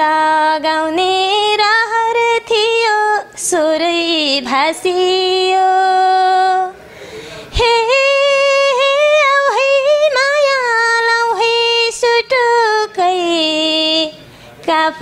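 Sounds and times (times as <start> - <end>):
woman singing unaccompanied: 0.0 - 6.8, 7.6 - 15.0.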